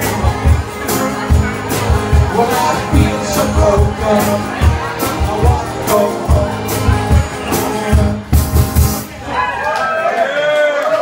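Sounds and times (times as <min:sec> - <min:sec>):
person singing: 0:00.0 - 0:08.5
drum beat: 0:00.0 - 0:09.1
band playing upbeat song: 0:00.0 - 0:09.5.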